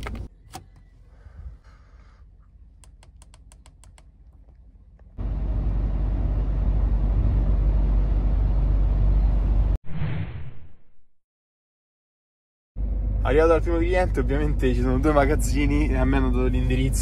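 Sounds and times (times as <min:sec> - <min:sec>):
truck rumbling on the move: 0:04.4 - 0:09.8.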